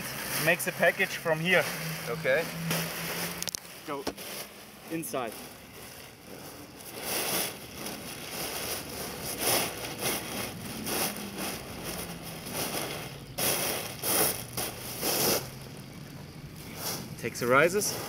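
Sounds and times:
fabric rustling: 0.0 - 15.8.

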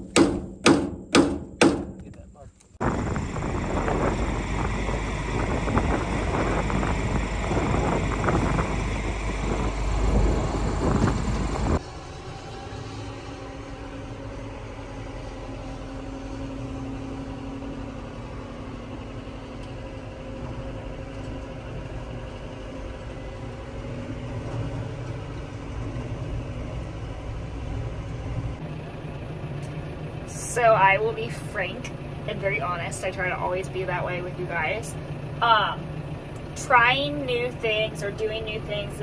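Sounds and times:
tractor diesel engine droning: 0.0 - 39.0
wind rumble on microphone: 2.0 - 13.3.

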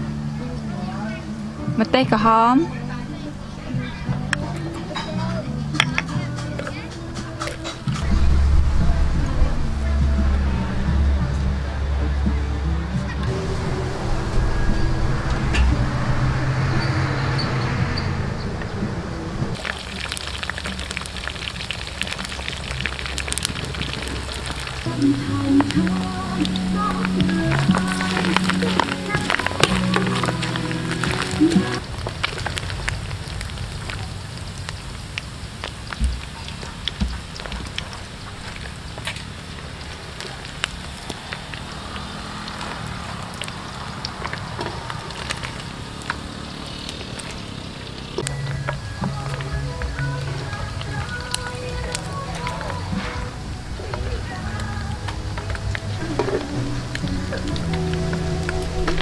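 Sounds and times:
oil sizzling and popping in a wok: 19.6 - 59.0.

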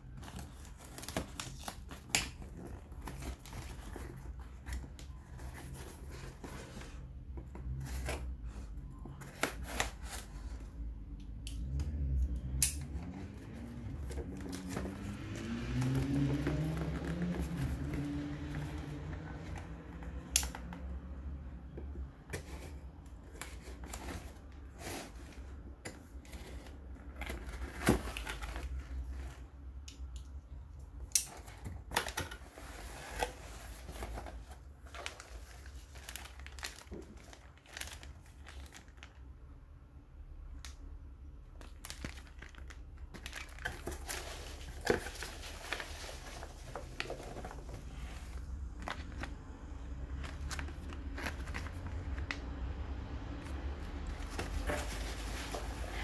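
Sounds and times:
plastic and packing peanuts rustling: 31.3 - 39.3, 41.6 - 56.0.

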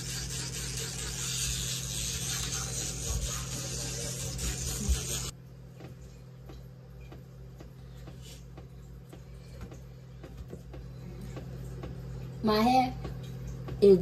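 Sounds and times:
electric toothbrush buzzing: 0.0 - 5.4.

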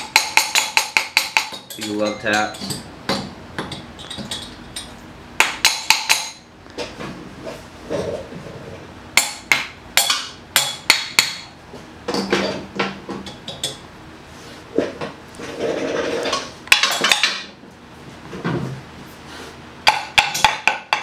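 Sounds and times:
metal scraping: 15.4 - 16.6.

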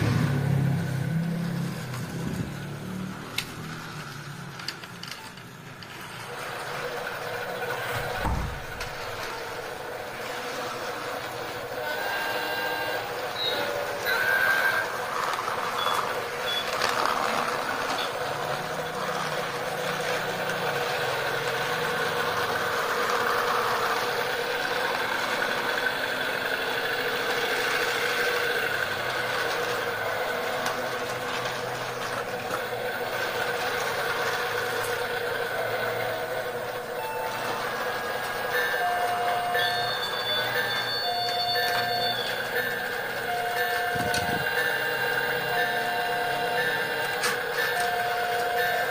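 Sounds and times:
wheel clatter on track: 0.0 - 48.9
toy train motor whine: 0.1 - 48.9.

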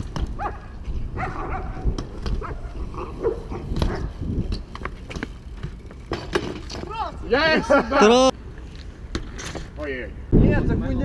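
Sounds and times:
dog barking: 0.4 - 1.8, 2.4 - 4.1.

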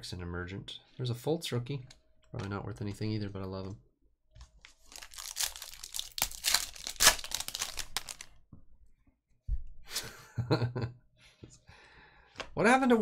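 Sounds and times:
wrapper tearing and crinkling: 4.6 - 8.4.

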